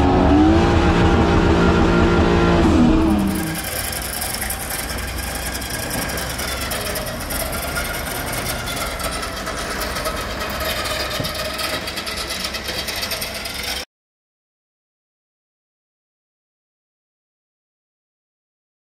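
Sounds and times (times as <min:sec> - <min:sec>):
motor running with whine: 0:00.0 - 0:13.8.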